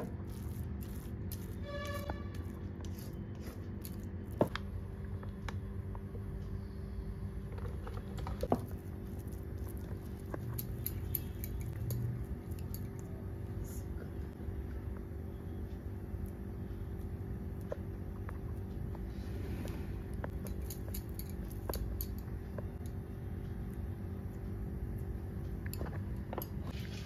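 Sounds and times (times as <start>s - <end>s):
steady low hum: 0.0s - 27.0s
spatula mixing in glass bowl: 8.5s - 13.0s.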